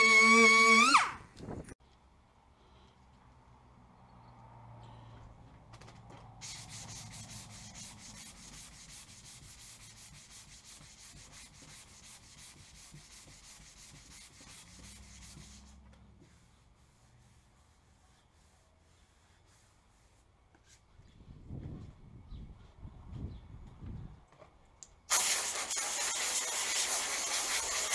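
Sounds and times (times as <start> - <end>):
sanding block scratching: 6.4 - 20.2, 25.3 - 27.9.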